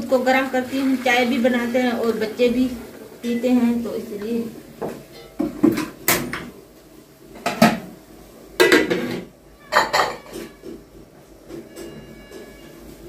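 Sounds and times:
metal pot and lid clattering: 8.6s - 10.7s.

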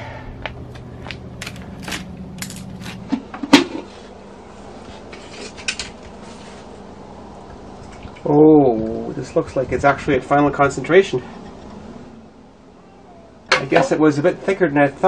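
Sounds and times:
aluminium foil crinkling: 1.4s - 3.1s.

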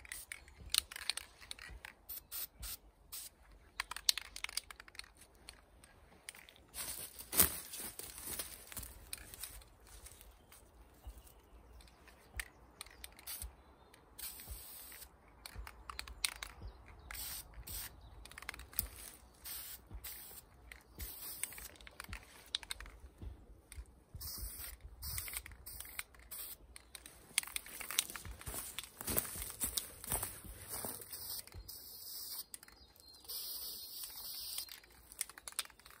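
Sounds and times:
spray paint can hissing: 2.1s - 3.4s, 13.2s - 13.5s, 14.2s - 15.1s, 17.1s - 21.7s, 24.2s - 26.6s, 31.0s - 32.6s, 33.3s - 34.7s.

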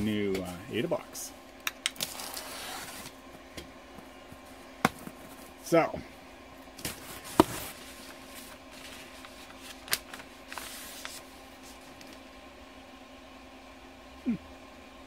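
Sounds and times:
paper rustling: 6.8s - 12.2s.

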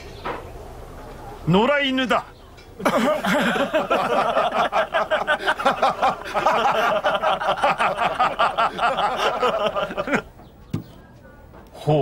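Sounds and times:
men laughing: 2.8s - 10.4s.

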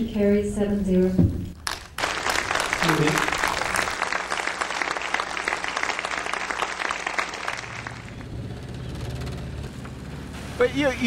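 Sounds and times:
audience applause: 1.6s - 8.3s.

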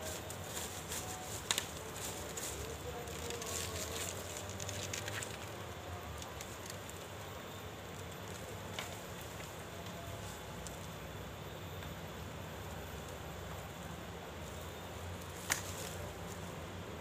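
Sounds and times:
bamboo leaves crackling and rustling: 0.0s - 17.0s.

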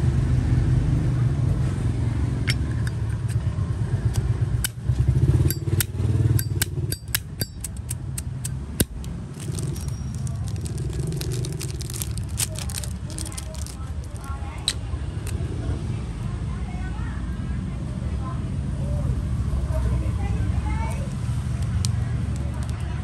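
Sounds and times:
low rumble of road traffic: 0.0s - 23.0s
metallic lighter clicks: 5.5s - 9.1s.

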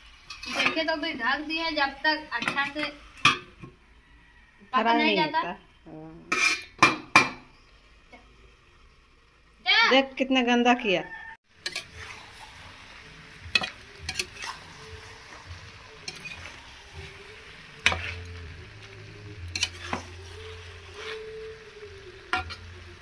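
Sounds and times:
frying sizzle: 0.0s - 23.0s
metal ladle scraping a pan: 0.1s - 1.1s, 6.3s - 6.9s, 11.6s - 22.8s.

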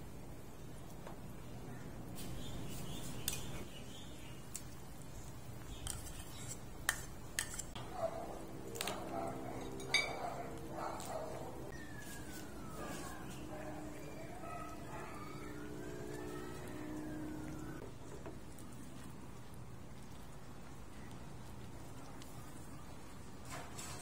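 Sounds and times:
stirring noise: 4.6s - 24.0s
utensils clinking against pan: 5.8s - 7.8s, 9.6s - 10.4s.

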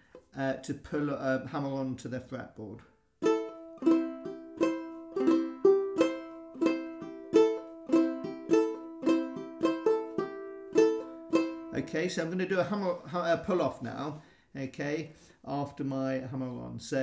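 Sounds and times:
banjo ukulele plucked: 3.2s - 12.1s.

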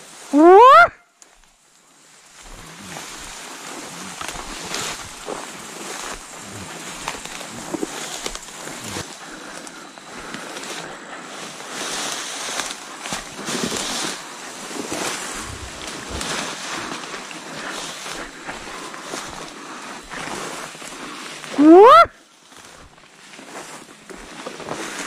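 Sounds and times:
wind gusts buffeting microphone: 15.3s - 16.3s.

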